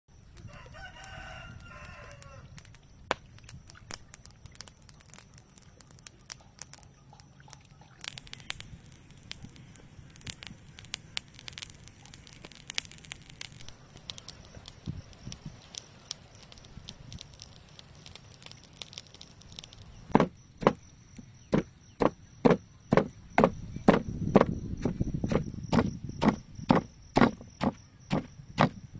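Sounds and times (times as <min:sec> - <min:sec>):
pestle pounding in stone mortar: 0:21.5 - 0:24.5.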